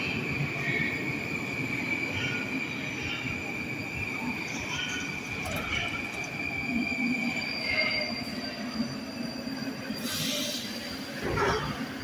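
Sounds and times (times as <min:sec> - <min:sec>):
train rumble: 0:00.0 - 0:08.8
train wheels squealing: 0:00.0 - 0:12.0
short air hiss: 0:10.0 - 0:10.8.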